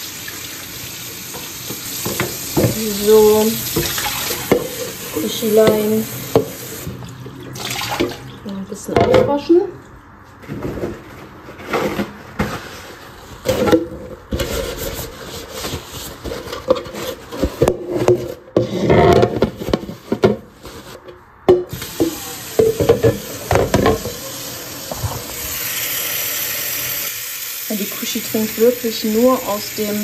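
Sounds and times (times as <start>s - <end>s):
tap running: 1.3s - 7.1s, 21.7s - 24.3s
plastic bowl rubbing and clattering: 10.4s - 21.0s.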